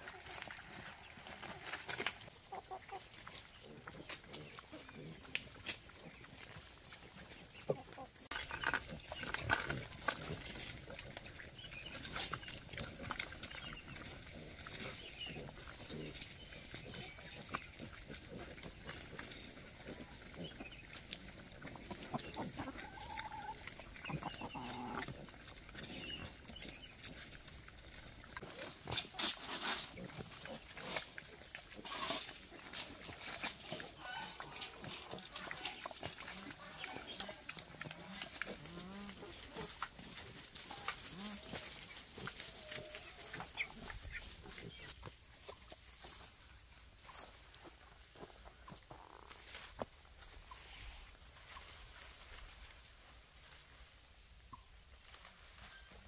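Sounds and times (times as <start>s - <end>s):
leaves rustling and crunching: 0.0s - 56.0s
wild boars grunting: 3.3s - 45.0s.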